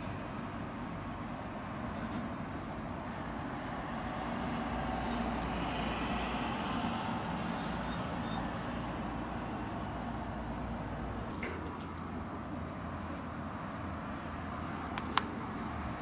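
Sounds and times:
road traffic rumble and hiss: 0:00.0 - 0:16.0.

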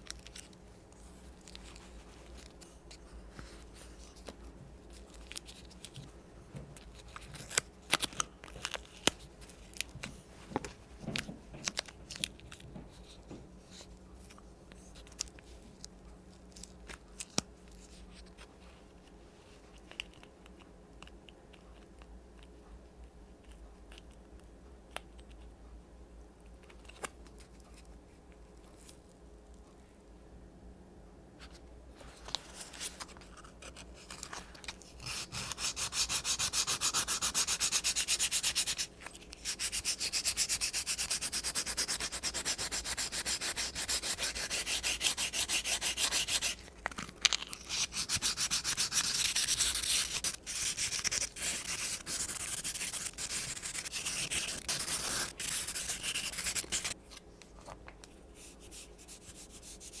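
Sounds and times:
sanding wood by hand: 0:39.5 - 0:46.6, 0:47.7 - 0:57.0.

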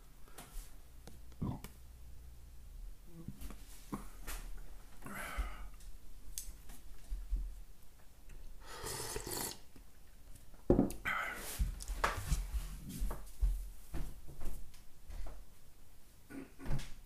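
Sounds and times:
person slurping broth: 0:08.6 - 0:09.7.

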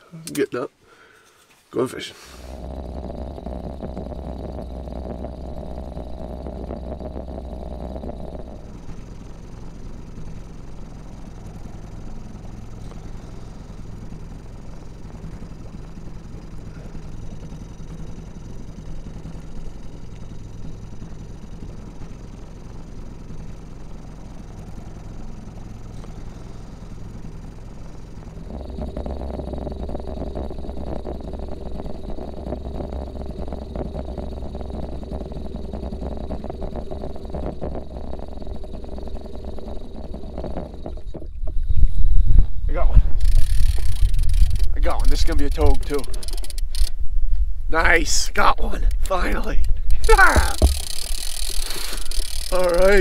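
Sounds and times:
sudden loud noise: 0:02.2 - 0:10.3
small motor running: 0:02.3 - 0:47.0, 0:47.8 - 0:53.0.

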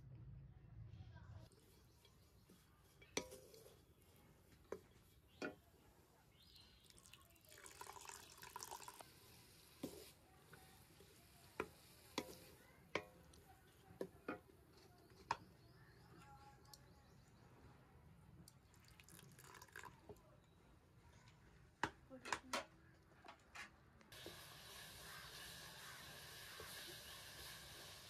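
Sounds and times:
liquid pouring: 0:06.8 - 0:09.9, 0:18.5 - 0:20.2.

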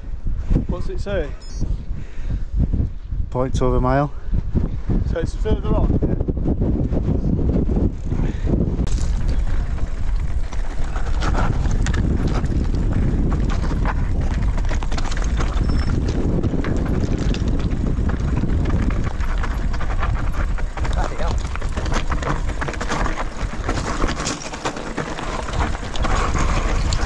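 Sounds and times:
wind rumbling on microphone: 0:00.0 - 0:27.0
bike tyres crunching on stones: 0:08.9 - 0:27.0.

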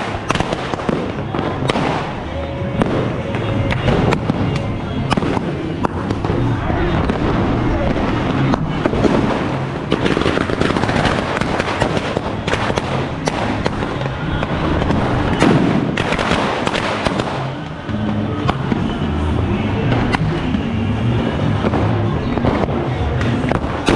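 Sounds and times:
firecrackers popping: 0:00.0 - 0:23.9
music with bass line: 0:00.0 - 0:23.9.

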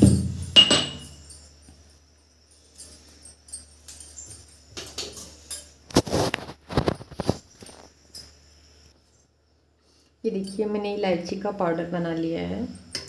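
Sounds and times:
kitchen knocks and clatters: 0:00.0 - 0:01.3, 0:04.3 - 0:07.9
light clicks and rustles: 0:02.5 - 0:08.3.

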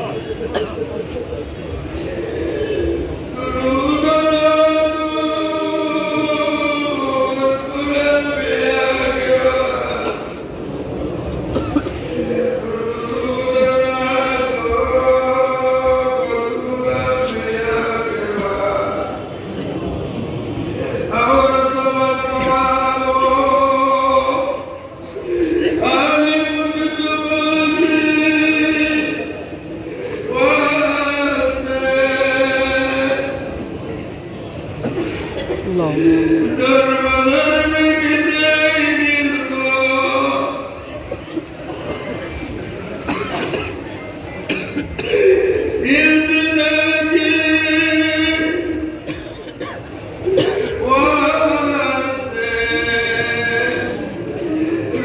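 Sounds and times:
indistinct voices: 0:00.0 - 0:55.0
man chanting: 0:01.6 - 0:10.4, 0:12.1 - 0:33.6, 0:35.7 - 0:41.0, 0:45.0 - 0:49.0, 0:50.2 - 0:55.0
man chanting in held notes: 0:35.7 - 0:40.8, 0:50.7 - 0:55.0.

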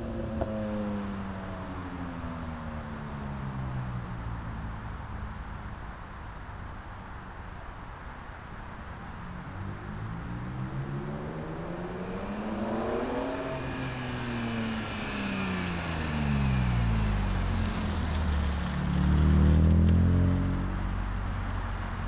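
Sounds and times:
car exhaust driving past: 0:09.2 - 0:21.3.

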